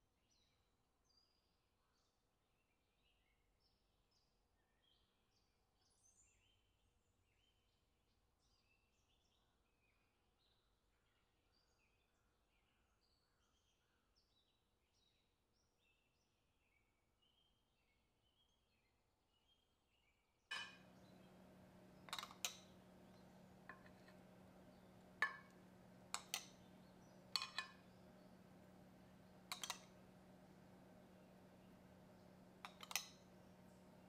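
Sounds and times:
faint chirps: 0:20.5 - 0:34.0
faint steady hum: 0:20.5 - 0:34.0
utensils and dishes clinking: 0:20.5 - 0:34.0.

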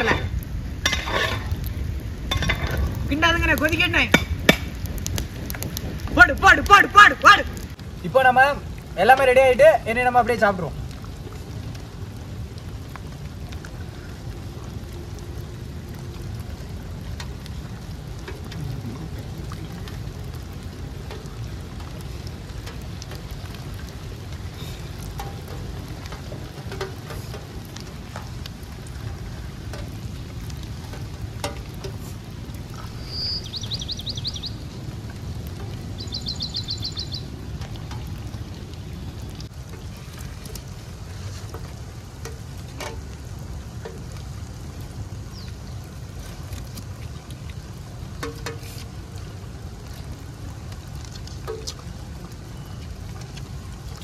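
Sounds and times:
low outdoor rumble: 0:00.0 - 0:54.0
small clicks and taps on metal plate: 0:25.0 - 0:28.3, 0:48.2 - 0:48.9.

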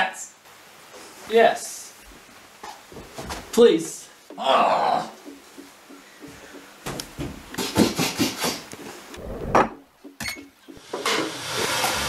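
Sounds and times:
hiss: 0:10.8 - 0:12.0.

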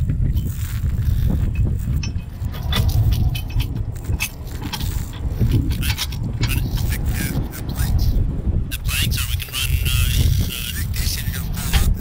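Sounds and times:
wind rumble on microphone: 0:00.0 - 0:12.0
steel chain clinking: 0:00.3 - 0:07.4.

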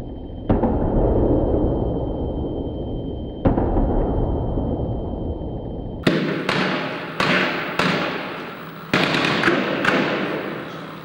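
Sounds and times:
rifle gunshots with echo: 0:06.0 - 0:11.0.

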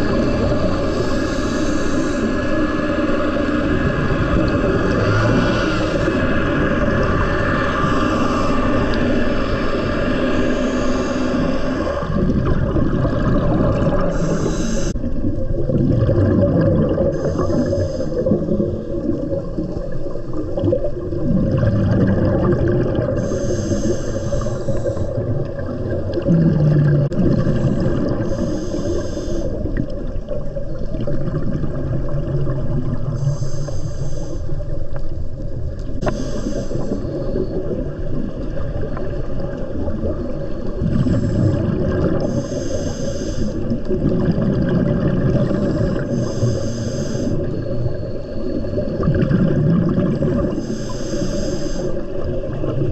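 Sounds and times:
scuba regulator breathing: 0:00.0 - 0:03.6, 0:04.5 - 0:12.2, 0:13.5 - 0:15.0, 0:16.9 - 0:19.1, 0:22.9 - 0:30.1, 0:33.1 - 0:35.0, 0:36.0 - 0:37.7, 0:40.5 - 0:44.3, 0:45.4 - 0:49.0, 0:50.1 - 0:52.5
low underwater rumble: 0:00.0 - 0:50.8.

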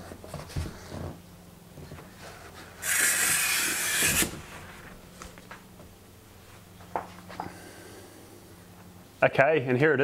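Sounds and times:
packaging scraping on cardboard: 0:02.2 - 0:04.9.

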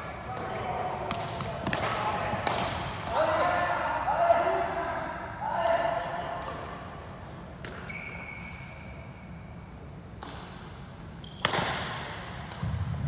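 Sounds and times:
racket smacking shuttlecock: 0:10.2 - 0:12.9.

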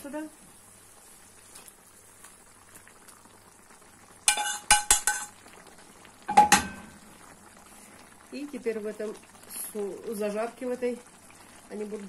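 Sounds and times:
metal utensil scraping a frying pan: 0:04.3 - 0:05.3.

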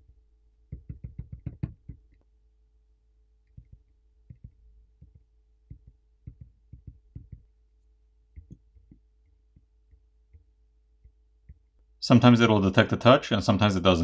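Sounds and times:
fingertips tapping on touchscreen: 0:00.7 - 0:02.2, 0:03.4 - 0:07.5, 0:08.3 - 0:11.7.

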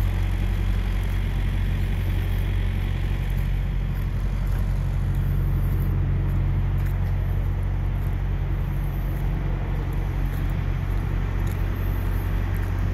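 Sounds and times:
diesel truck engine idling: 0:00.0 - 0:12.9.

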